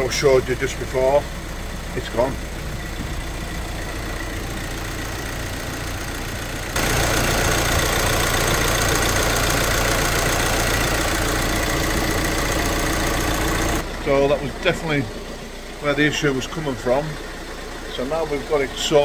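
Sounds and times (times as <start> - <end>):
diesel engine idling: 0.0 - 19.0.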